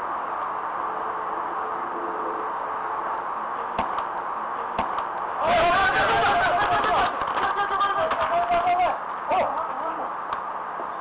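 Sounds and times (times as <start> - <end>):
outdoor background hiss: 0.0 - 11.0
ballplayers shouting: 4.6 - 9.1.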